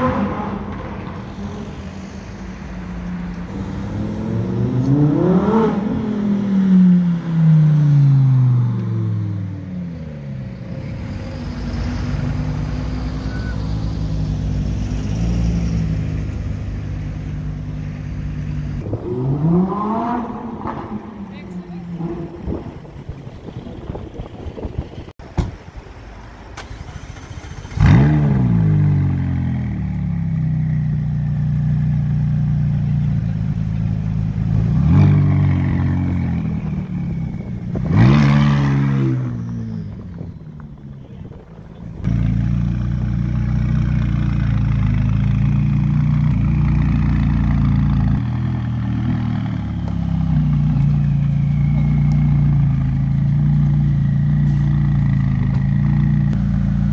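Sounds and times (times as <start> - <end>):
sports car engine starting and revving: 3.4 - 25.1, 26.5 - 40.9.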